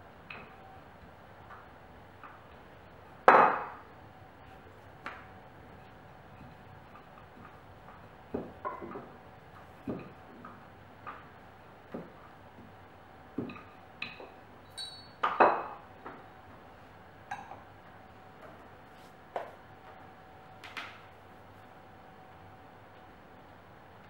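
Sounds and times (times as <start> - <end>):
short metallic pings: 14.6 - 15.2.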